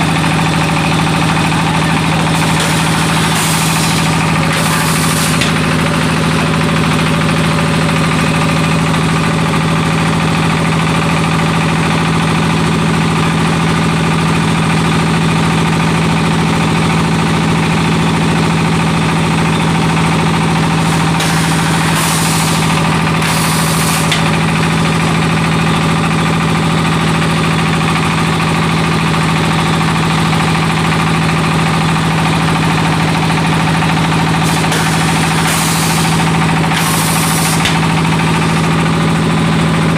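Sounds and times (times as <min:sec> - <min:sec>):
brick extruding machine drone: 0:00.0 - 0:09.7, 0:19.6 - 0:26.0, 0:30.2 - 0:39.9.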